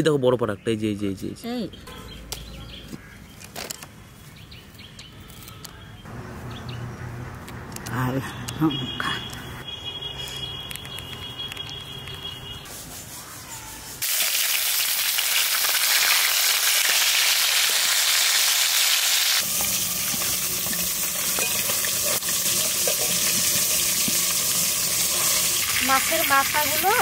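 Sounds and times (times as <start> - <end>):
fish sizzling in oil: 14.0 - 27.0.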